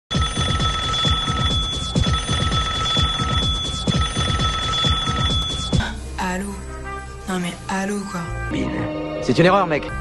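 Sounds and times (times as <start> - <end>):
payphone ringing: 0.1 - 5.8.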